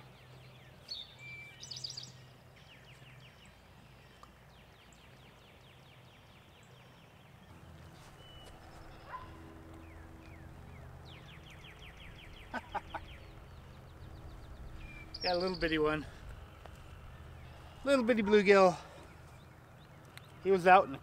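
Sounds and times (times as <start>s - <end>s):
bird trills: 7.6s - 20.6s.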